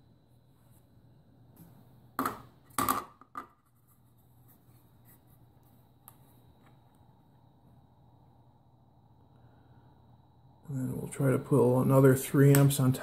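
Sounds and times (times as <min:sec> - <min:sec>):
faint low hum: 0:00.0 - 0:13.0
handling and rubbing: 0:03.6 - 0:06.8.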